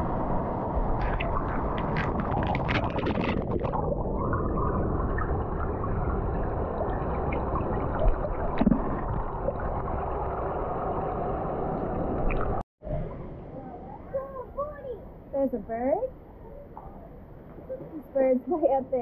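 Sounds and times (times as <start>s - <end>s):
underwater rush of water: 0.0s - 12.6s
underwater gurgles: 0.6s - 12.6s.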